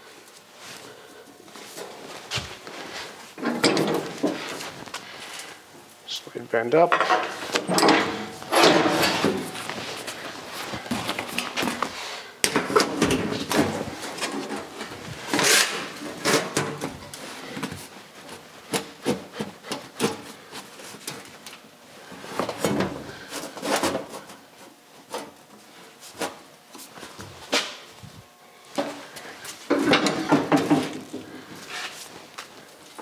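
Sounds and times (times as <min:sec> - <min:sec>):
metal clanks and knocks: 0:03.4 - 0:04.4, 0:06.9 - 0:09.8, 0:29.7 - 0:31.3
sheet metal scraping: 0:07.1 - 0:10.0, 0:13.4 - 0:16.6.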